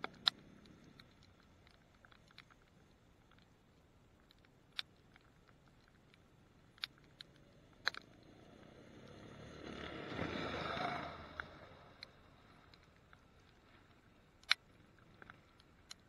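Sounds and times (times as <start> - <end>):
sharp ticks: 0.0 - 8.7, 11.2 - 16.0
snowmobile engine passing: 8.5 - 11.8.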